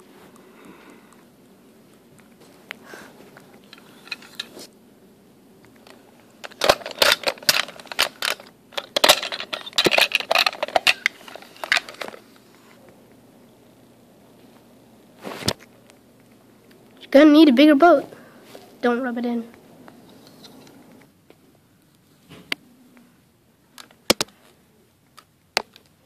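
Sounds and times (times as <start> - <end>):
plastic toy pieces clattering: 5.8 - 12.2.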